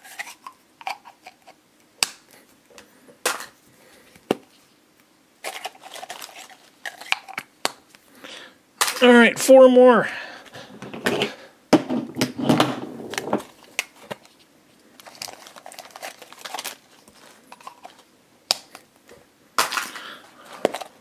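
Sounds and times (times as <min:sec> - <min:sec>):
cellophane crinkling: 0:05.4 - 0:07.3, 0:13.0 - 0:18.1.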